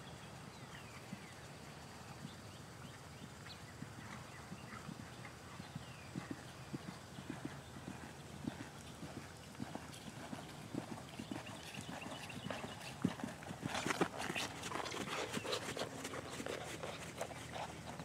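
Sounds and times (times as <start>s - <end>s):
horse hoofbeats on sand: 3.8s - 18.0s.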